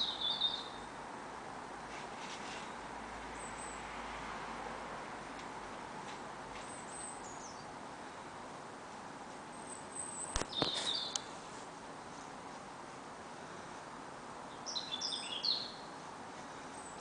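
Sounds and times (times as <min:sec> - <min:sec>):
small birds chirping: 0:00.0 - 0:00.9, 0:03.4 - 0:03.8, 0:06.6 - 0:08.2, 0:09.5 - 0:11.4, 0:14.4 - 0:17.0
outdoor background hiss: 0:00.0 - 0:17.0.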